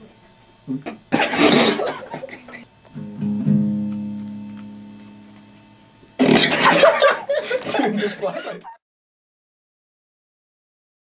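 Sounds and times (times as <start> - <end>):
acoustic guitar chord strummed: 2.9 - 7.3.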